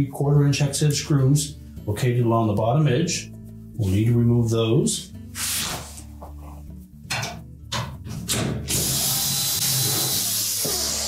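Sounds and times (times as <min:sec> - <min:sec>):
cordless drill motor: 0:08.7 - 0:11.0.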